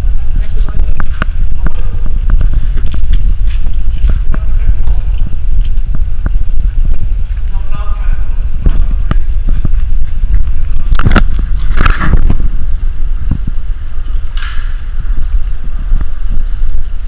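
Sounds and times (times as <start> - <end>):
low handling rumble: 0.0 - 17.0.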